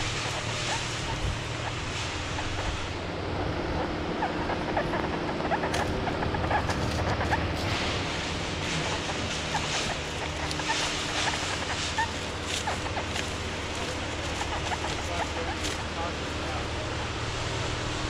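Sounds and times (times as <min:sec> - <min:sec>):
footsteps in dry leaves: 0:06.6 - 0:16.7.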